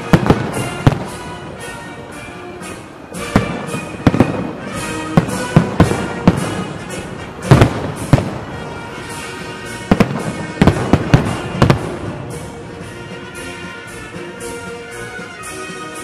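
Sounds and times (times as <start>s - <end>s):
firework shells bursting: 0.0s - 12.6s
music: 0.0s - 16.0s.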